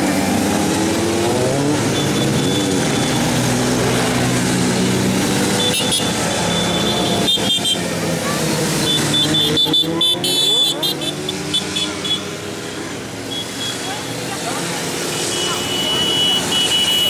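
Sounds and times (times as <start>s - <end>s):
vehicle engines passing: 0.0s - 17.0s.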